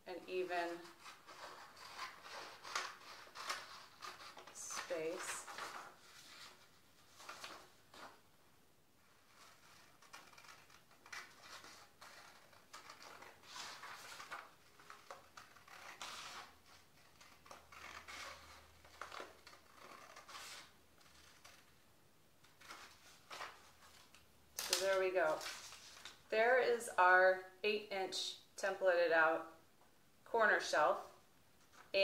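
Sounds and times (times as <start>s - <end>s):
scissors cutting paper: 0.2s - 6.6s, 9.2s - 21.7s, 22.4s - 26.2s
paper rustling: 0.5s - 8.3s, 9.0s - 21.8s, 22.4s - 26.3s, 31.6s - 32.0s.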